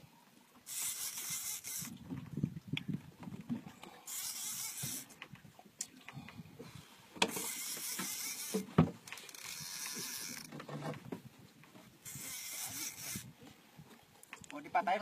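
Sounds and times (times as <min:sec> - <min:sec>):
fishing reel whirring: 0:00.6 - 0:02.0, 0:04.0 - 0:05.2, 0:07.3 - 0:10.5, 0:12.0 - 0:13.3.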